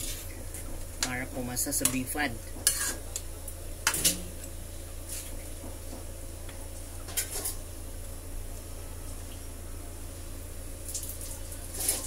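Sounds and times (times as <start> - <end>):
low hum: 0.0 - 11.8
metal ladle scraping a wok: 2.6 - 3.0, 11.7 - 12.0.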